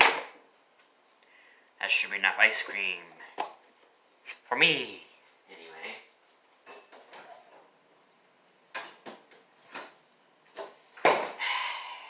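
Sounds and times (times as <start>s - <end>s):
kitchen items knocking and clattering: 6.6s - 7.7s.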